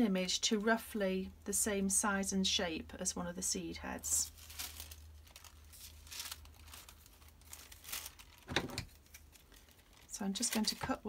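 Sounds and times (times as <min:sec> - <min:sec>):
tissue paper rustling: 0:04.0 - 0:11.0.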